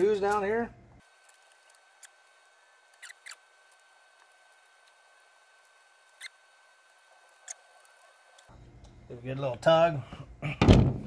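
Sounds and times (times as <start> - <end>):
short squeaks: 2.9 - 3.5, 6.1 - 6.4, 7.3 - 7.9.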